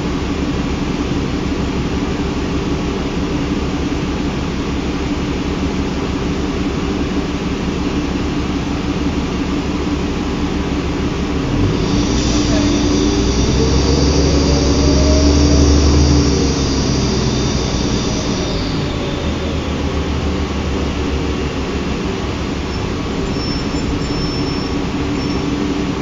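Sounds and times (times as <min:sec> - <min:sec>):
bus diesel engine pulling hard: 0:00.0 - 0:26.0
faint high whine: 0:11.4 - 0:25.7.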